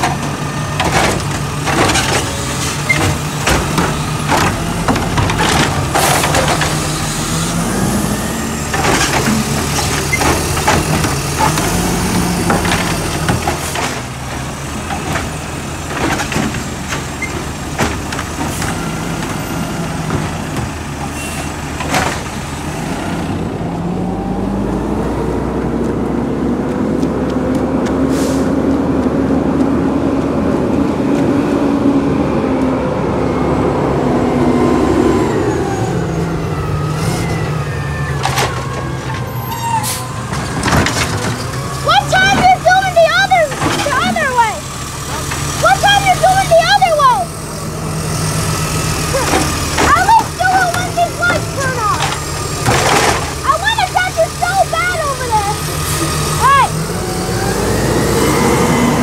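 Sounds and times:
truck arm knocking and banging: 0:00.0 - 0:22.6, 0:38.1 - 0:47.2, 0:48.1 - 0:56.7
garbage truck engine: 0:00.0 - 0:59.0.

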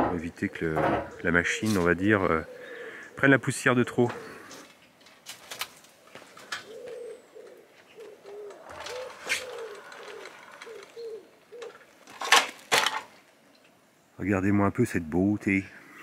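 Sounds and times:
pigeon cooing: 0:00.1 - 0:04.7, 0:06.4 - 0:12.0
moped wheeled down metal ramp: 0:08.2 - 0:13.2.

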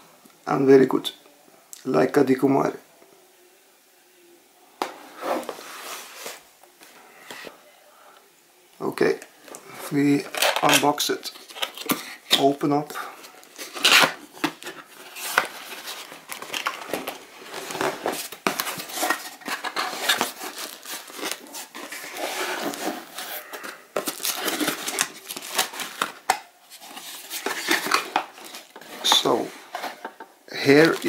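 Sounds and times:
cardboard packaging being handled: 0:13.2 - 0:31.0.

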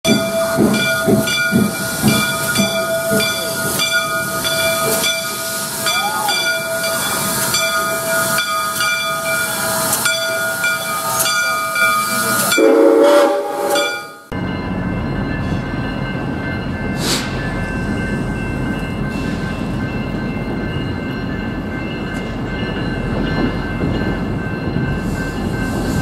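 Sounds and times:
locomotive bell ringing: 0:00.0 - 0:26.0
steam locomotive arriving: 0:00.1 - 0:26.0
hiss of steam: 0:17.0 - 0:17.4.

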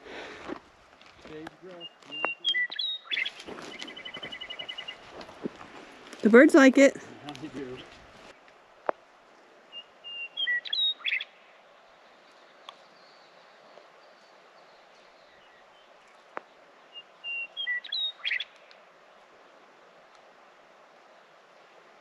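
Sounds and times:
steady background hiss: 0:00.0 - 0:22.0
songbird whistling and trilling: 0:01.8 - 0:05.0, 0:09.7 - 0:11.4, 0:16.9 - 0:18.6.

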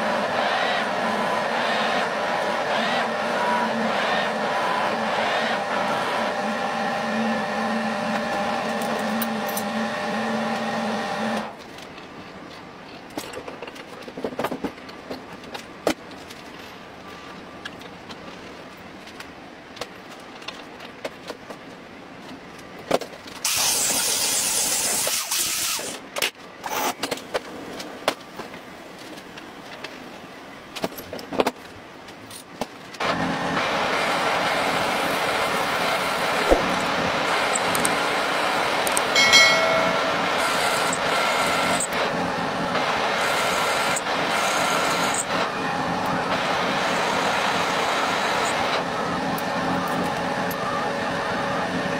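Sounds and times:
metal lathe whining: 0:00.0 - 0:11.5, 0:33.1 - 0:51.8.

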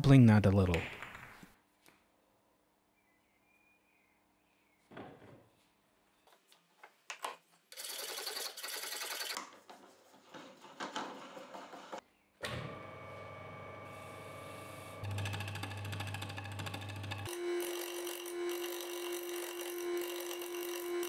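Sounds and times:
electric motor humming: 0:13.2 - 0:21.0.

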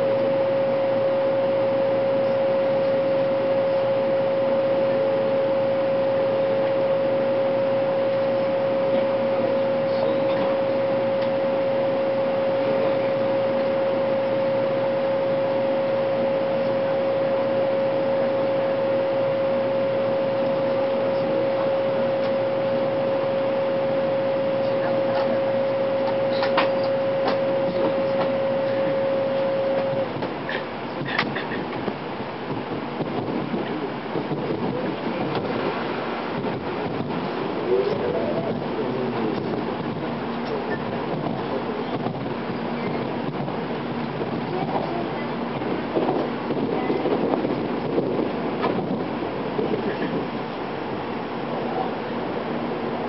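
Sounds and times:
held tone: 0:00.0 - 0:30.1
train running noise: 0:00.0 - 0:53.0.

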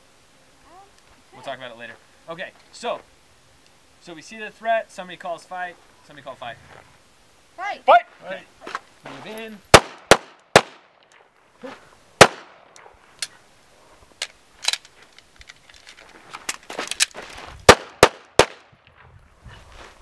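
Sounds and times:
handgun shots: 0:12.2 - 0:12.9, 0:17.7 - 0:18.7.

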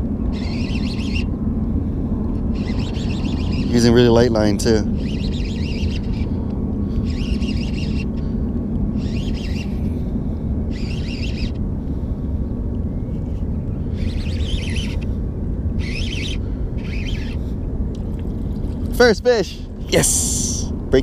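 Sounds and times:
steady low rumble: 0:00.0 - 0:21.0
fishing reel cranking: 0:07.0 - 0:08.1, 0:09.0 - 0:09.7.

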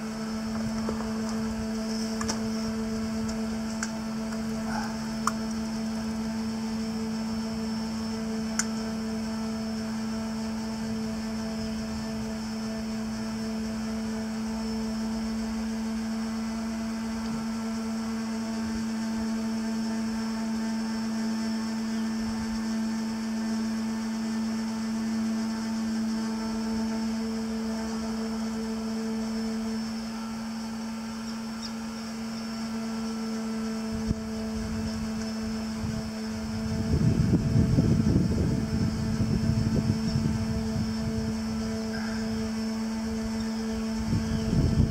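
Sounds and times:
machinery humming: 0:00.0 - 0:44.9.

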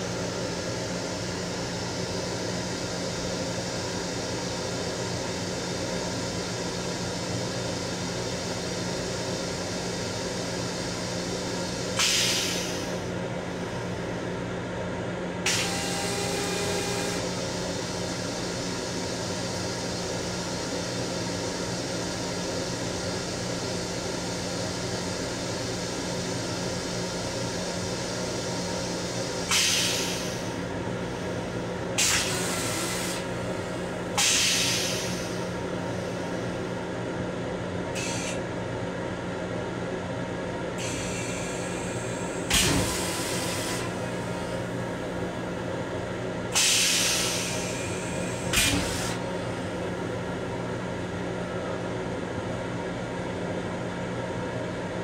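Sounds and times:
railcar hum: 0:00.0 - 0:38.5, 0:39.1 - 0:54.8.

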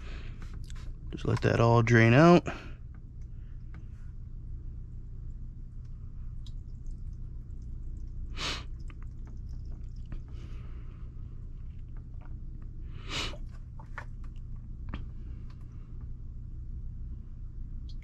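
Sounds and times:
steady low hum: 0:00.0 - 0:18.0
small wet clicks: 0:05.8 - 0:10.5.

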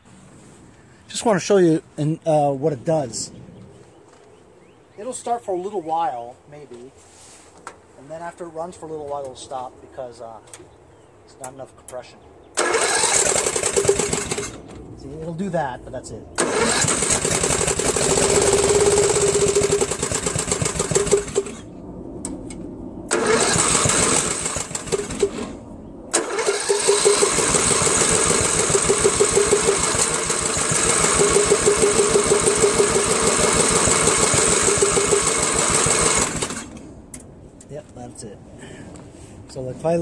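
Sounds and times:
lawn tractor engine running unevenly: 0:12.6 - 0:14.6, 0:16.4 - 0:21.6, 0:23.1 - 0:25.5, 0:26.2 - 0:36.7.

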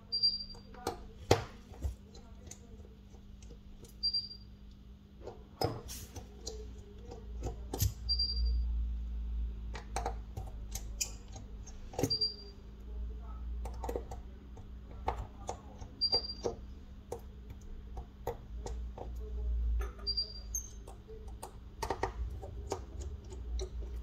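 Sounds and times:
small tools clicking and tapping: 0:09.7 - 0:12.5, 0:13.6 - 0:24.0.

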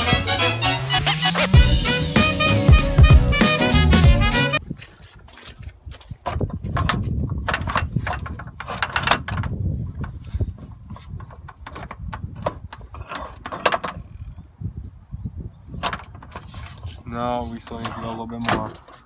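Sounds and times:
metal knocks and clunks: 0:06.0 - 0:14.1, 0:17.6 - 0:19.0.

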